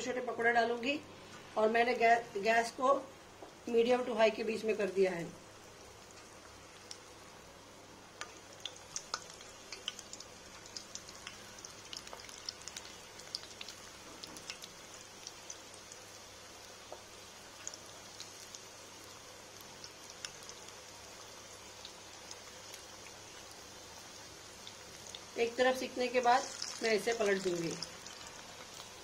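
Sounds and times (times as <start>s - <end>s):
oil sizzling with crackles: 0.0s - 29.0s.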